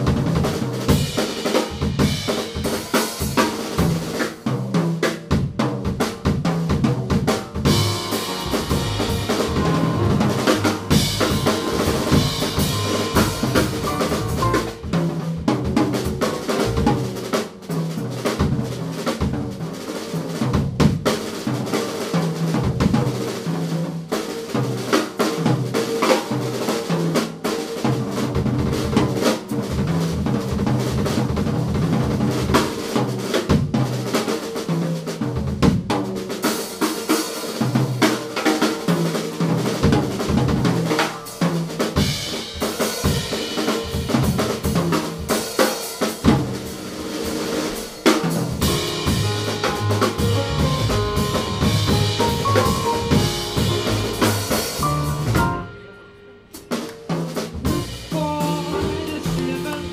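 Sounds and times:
jazz drum kit: 0:00.0 - 0:59.9
grand piano: 0:07.4 - 0:17.5, 0:46.3 - 0:56.3, 0:57.7 - 0:59.9
cymbals: 0:07.6 - 0:14.9, 0:40.8 - 0:59.9
upright bass: 0:07.6 - 0:14.9, 0:15.9 - 0:17.2, 0:48.6 - 0:55.6, 0:57.7 - 0:59.9.

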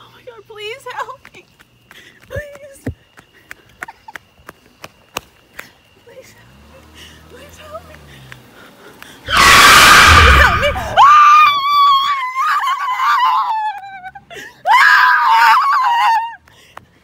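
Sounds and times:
woman screaming: 0:09.3 - 0:16.4.

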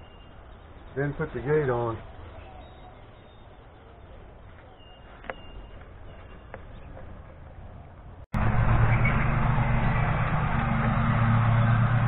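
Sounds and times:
loud steady motor hum: 0:08.4 - 0:12.0.

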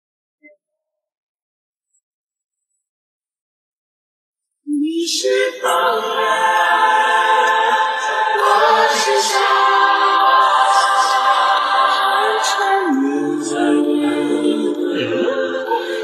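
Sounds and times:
music with sustained sung voices: 0:04.7 - 0:16.0.

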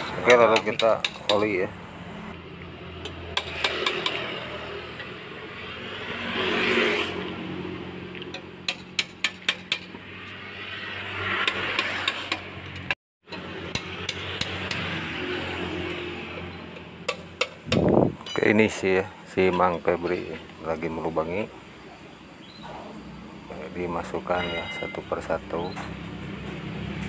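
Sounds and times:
sharp metallic taps: 0:00.2 - 0:01.6, 0:08.2 - 0:10.0, 0:11.4 - 0:13.0, 0:13.7 - 0:14.9, 0:16.7 - 0:18.5.

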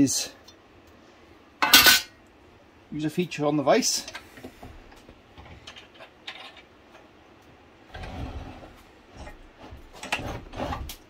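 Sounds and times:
low scrape of vise turning: 0:07.9 - 0:11.0.

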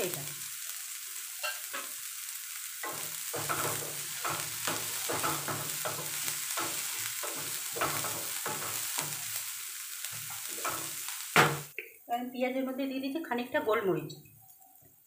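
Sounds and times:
sizzle of frying in oil: 0:00.0 - 0:11.8
wooden spatula scraping a pan: 0:02.8 - 0:09.4, 0:10.1 - 0:11.7.

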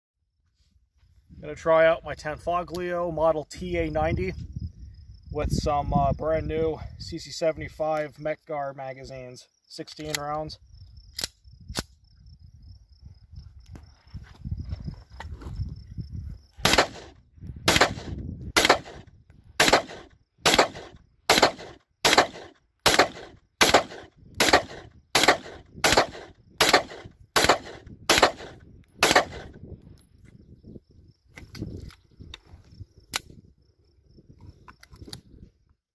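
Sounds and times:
pistol handling clicks: 0:09.9 - 0:10.4, 0:11.1 - 0:11.9
pistol shots: 0:16.6 - 0:19.0, 0:19.6 - 0:29.6.

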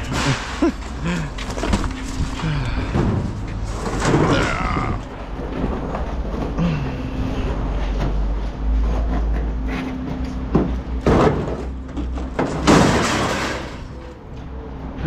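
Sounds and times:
plastic clattering in metal dumpster: 0:00.0 - 0:06.8, 0:10.5 - 0:14.1.

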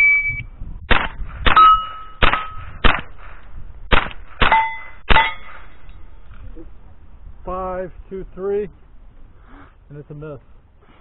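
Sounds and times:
rifle shots: 0:00.9 - 0:05.9
steel targets ringing: 0:01.6 - 0:02.6, 0:04.4 - 0:06.1.

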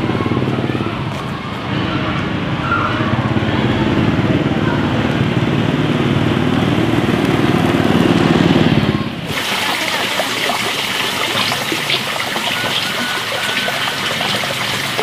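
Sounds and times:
flowing water: 0:09.2 - 0:15.0.

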